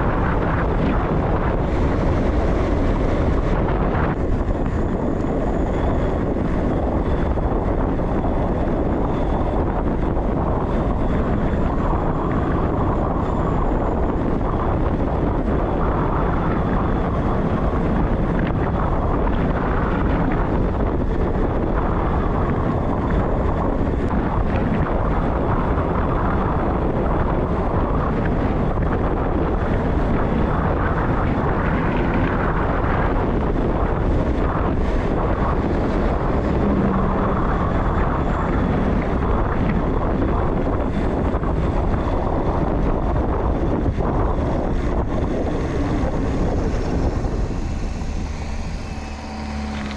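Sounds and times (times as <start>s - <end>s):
constant low rumble: 0.0s - 49.9s
wind rushing over microphone: 0.0s - 49.9s.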